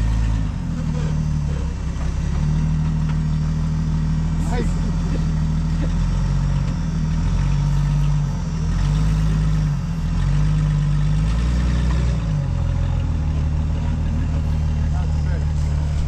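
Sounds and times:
utility vehicle engine revving: 0.0s - 16.0s.

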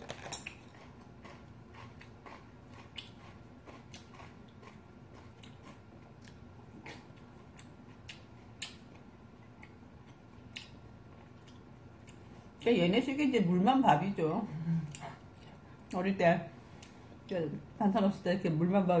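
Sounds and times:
person chewing: 0.0s - 12.6s.

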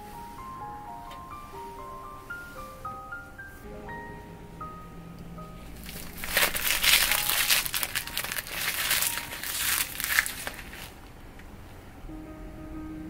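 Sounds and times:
silicone bag crinkling: 5.8s - 11.1s.

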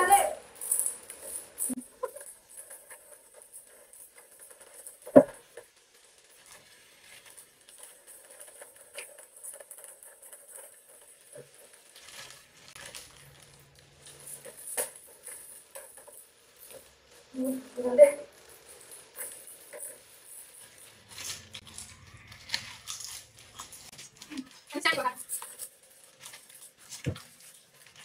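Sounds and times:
plastic chip packet crinkling: 0.5s - 28.0s
potato chips crunching: 10.8s - 14.6s, 18.4s - 28.0s.

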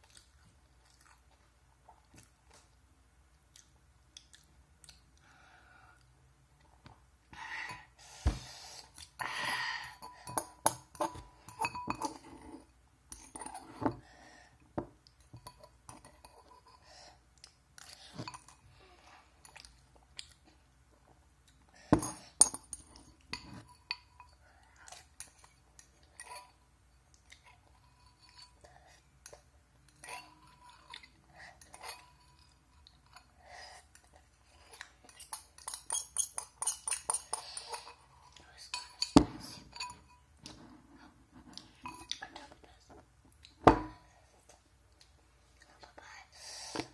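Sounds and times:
chewing: 0.0s - 2.7s, 3.5s - 5.2s
spoon clinking on ceramic bowl: 10.0s - 12.2s, 35.1s - 38.0s.

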